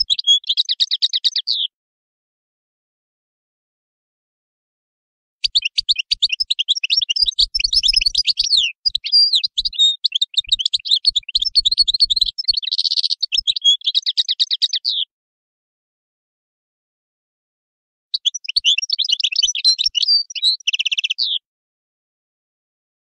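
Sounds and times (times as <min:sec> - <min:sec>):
goldfinch singing: 0:00.0 - 0:01.7, 0:05.4 - 0:15.1, 0:18.2 - 0:21.4.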